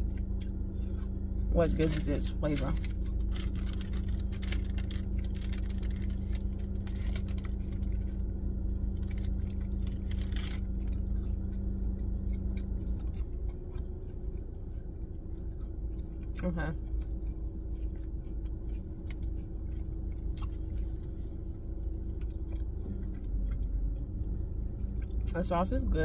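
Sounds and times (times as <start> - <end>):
person chewing: 0.0 - 25.4
car low rumble: 0.0 - 26.0
steady hum: 0.0 - 26.0
wrapper crackles and rustles: 1.8 - 11.2.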